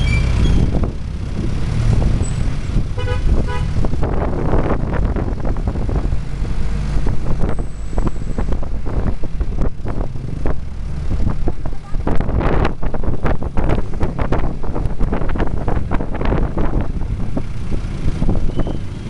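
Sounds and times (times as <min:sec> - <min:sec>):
road and rattle noise: 0:00.0 - 0:19.0
vehicle engine rumble: 0:00.0 - 0:19.0
vehicle horn tooting: 0:03.0 - 0:03.7.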